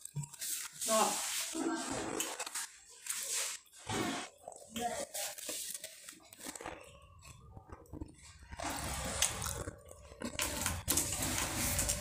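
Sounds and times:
chewing and crunching: 5.7s - 10.8s.

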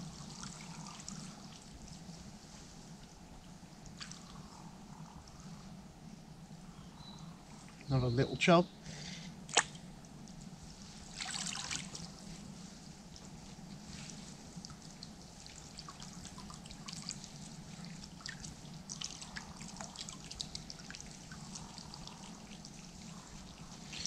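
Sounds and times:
water trickling and dripping: 0.0s - 5.6s, 9.5s - 12.3s, 13.0s - 24.0s
water splash: 9.5s - 9.8s, 11.1s - 12.1s.

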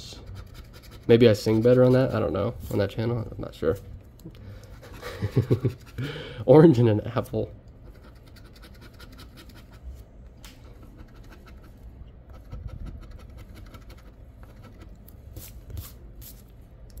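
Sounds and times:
coin scratching lottery ticket: 0.0s - 2.1s, 7.9s - 9.8s.

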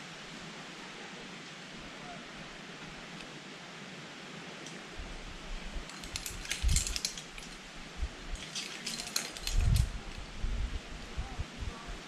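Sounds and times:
metal climbing hardware jangling: 5.9s - 7.6s, 8.3s - 10.2s.

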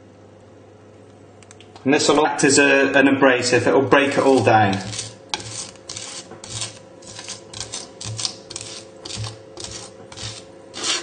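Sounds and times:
knife scraping garlic on wooden board: 4.1s - 11.0s.

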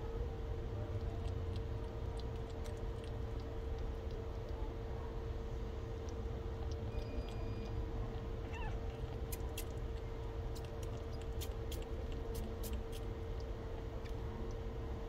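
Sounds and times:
kitten sucking with wet clicks: 0.6s - 14.8s.

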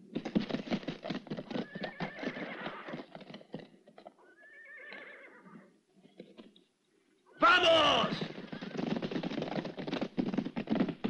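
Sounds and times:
horse hooves clattering: 0.0s - 6.7s, 7.4s - 11.0s
horse whinnying: 1.5s - 3.1s, 4.2s - 5.7s, 7.3s - 9.0s.

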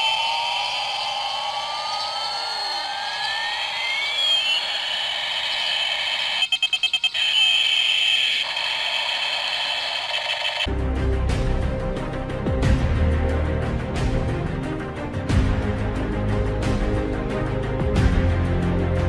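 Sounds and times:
rapid electronic rattle: 0.0s - 10.7s
steady high whine: 0.0s - 10.7s
toy siren-like tone: 0.0s - 10.7s.

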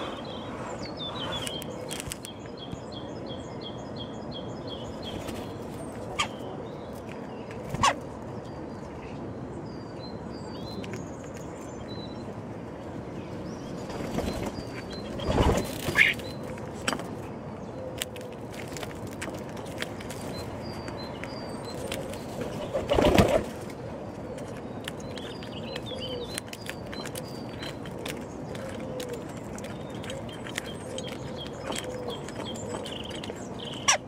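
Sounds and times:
pigeon wings flapping: 22.6s - 23.6s
songbird high chirps: 24.3s - 34.0s.

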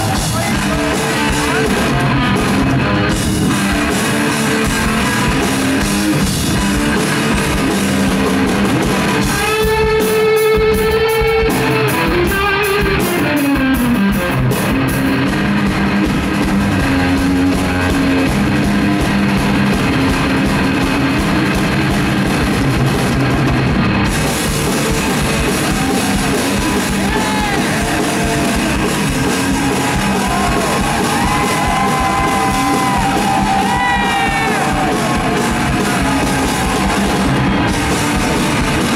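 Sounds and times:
drum kit: 0.0s - 38.9s
overdriven electric guitar: 0.0s - 38.9s.

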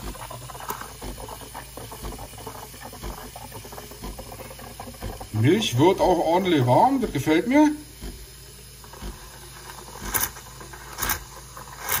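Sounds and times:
milk crackling and gurgling: 0.0s - 12.0s
steam wand hissing into milk: 0.0s - 12.0s.

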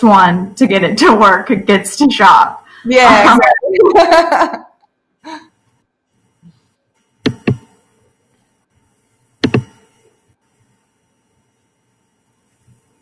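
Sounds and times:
sharp double clicks: 7.2s - 7.7s, 9.4s - 9.8s.

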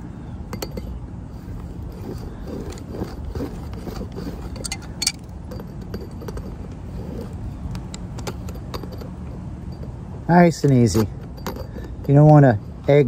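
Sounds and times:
low background rumble: 0.0s - 13.0s
pliers clicking on copper pipe: 4.6s - 5.2s.

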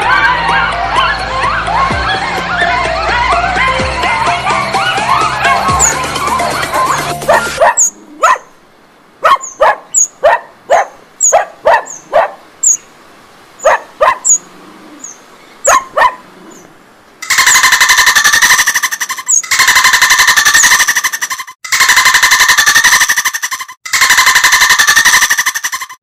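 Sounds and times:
wren rattle call: 4.9s - 8.0s, 17.2s - 26.0s
wren chipping calls: 5.0s - 8.0s, 9.4s - 10.2s, 13.6s - 14.4s, 16.5s - 22.0s.

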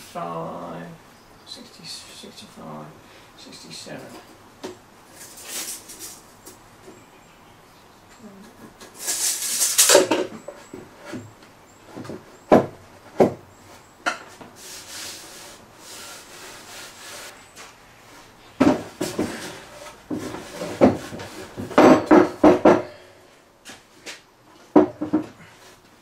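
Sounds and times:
tape measure and pencil scratching wood: 8.8s - 10.0s
wooden boards knocking together: 11.9s - 13.4s, 18.6s - 23.0s
sharp knocks: 20.2s - 23.0s.

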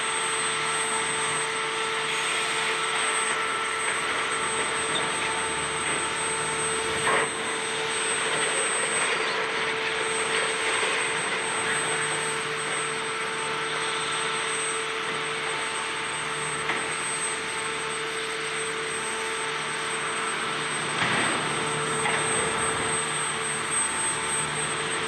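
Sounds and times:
excavator running: 2.2s - 14.2s, 19.8s - 25.0s.

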